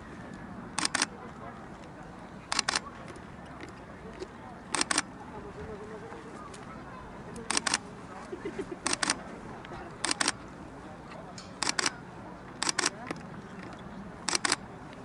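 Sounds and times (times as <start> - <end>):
camera shutter double clicks: 0.8 - 1.1, 2.5 - 2.8, 4.7 - 5.1, 7.5 - 7.8, 8.8 - 9.2, 10.0 - 10.4, 11.6 - 12.0, 12.6 - 13.0, 14.3 - 14.6.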